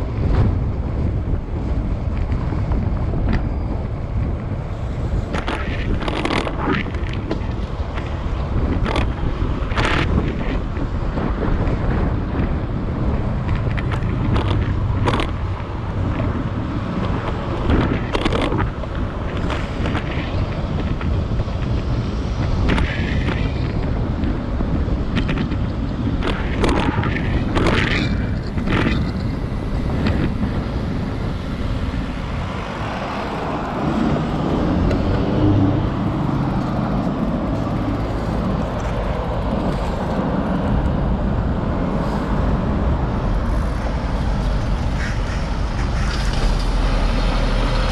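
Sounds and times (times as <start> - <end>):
passing vehicle: 0.0 - 47.9
road and wind rumble: 0.0 - 47.9
traffic: 0.0 - 47.9
bicycle clicks and rattles: 5.3 - 31.9, 36.5 - 42.4.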